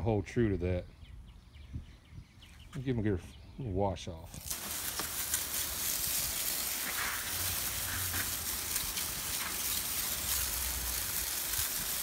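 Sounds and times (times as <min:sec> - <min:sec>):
hose water spraying: 0:04.3 - 0:12.0.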